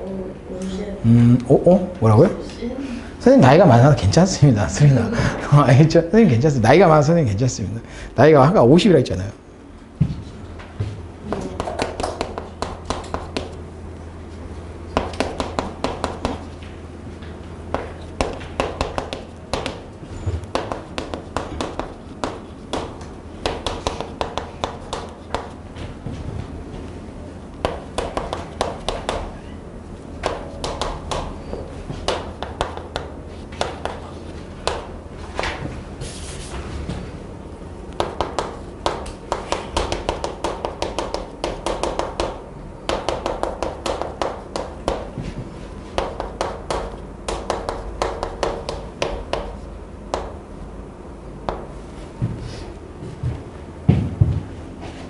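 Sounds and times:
steady low hum: 0:00.0 - 0:55.0
chalk tapping and scratching: 0:11.3 - 0:13.6, 0:14.9 - 0:16.6, 0:17.7 - 0:25.6, 0:27.6 - 0:29.4, 0:30.2 - 0:36.5, 0:37.9 - 0:50.3.

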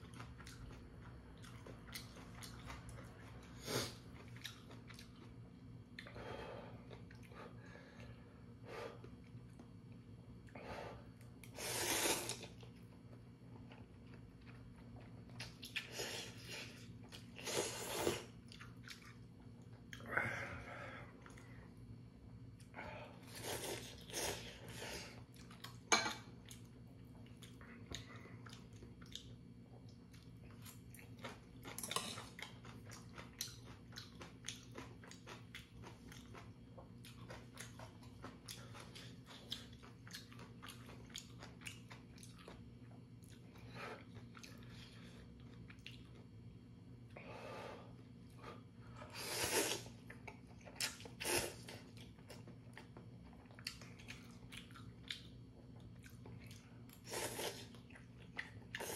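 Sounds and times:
faint low hum: 0:00.0 - 0:58.9
noodle slurps: 0:49.2 - 0:50.0.

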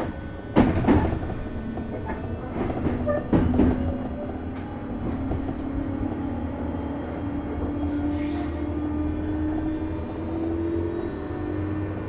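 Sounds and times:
wheels rumbling on rail: 0:00.0 - 0:12.0.

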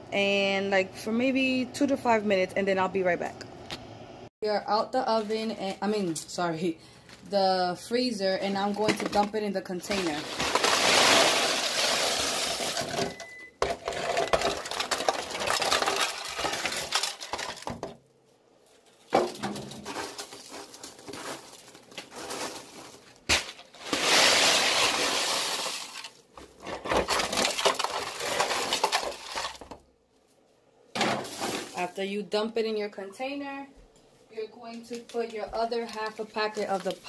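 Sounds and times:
popcorn pouring and rattling: 0:09.8 - 0:17.8, 0:19.6 - 0:23.1, 0:23.8 - 0:29.8.

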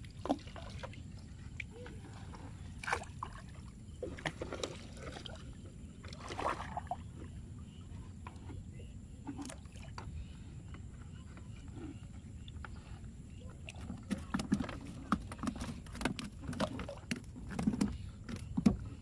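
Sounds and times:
river water splashing: 0:00.0 - 0:07.1.

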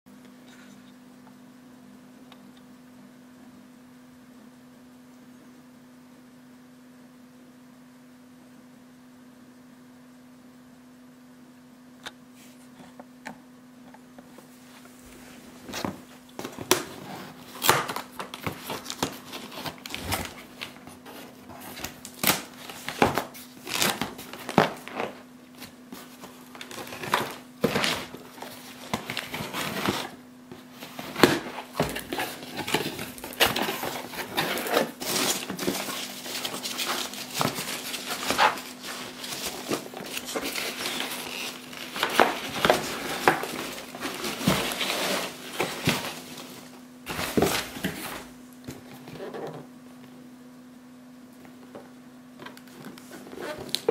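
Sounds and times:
faint hum: 0:00.1 - 0:53.9
packaging crinkling: 0:15.7 - 0:48.4.

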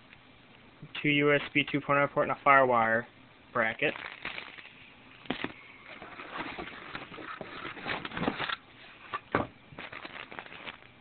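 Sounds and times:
plastic bags crinkling: 0:03.8 - 0:08.6, 0:09.7 - 0:11.0.

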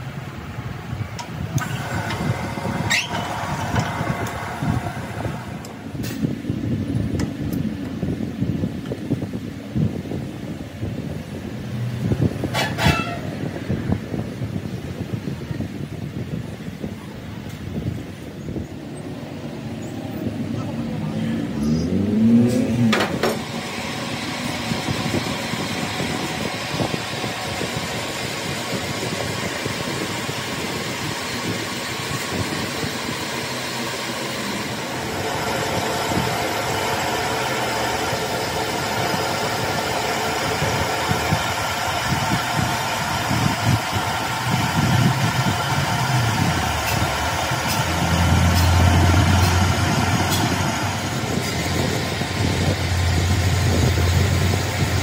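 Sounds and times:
machine running steadily: 0:00.0 - 0:11.6, 0:22.8 - 0:55.0.

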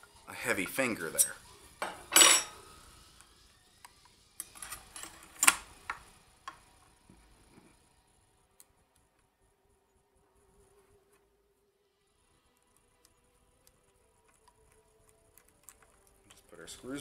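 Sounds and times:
metal plate clicks and clinks: 0:01.8 - 0:02.6.

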